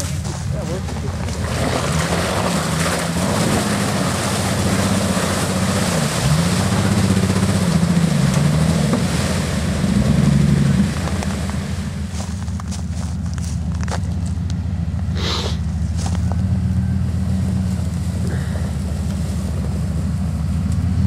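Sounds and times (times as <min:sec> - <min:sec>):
off-road vehicle engine revving: 0:00.0 - 0:21.0.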